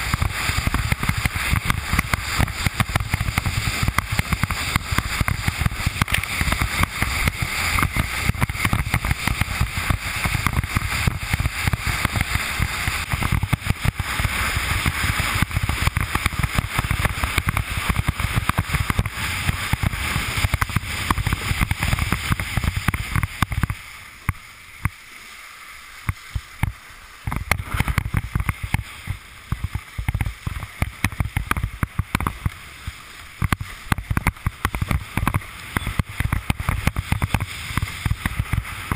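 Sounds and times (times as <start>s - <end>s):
water rushing and hissing: 0.0s - 38.9s.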